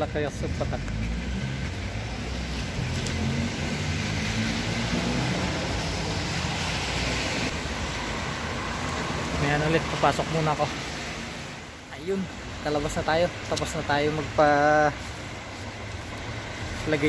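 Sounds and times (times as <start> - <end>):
passing car engines humming: 0.5 - 10.1.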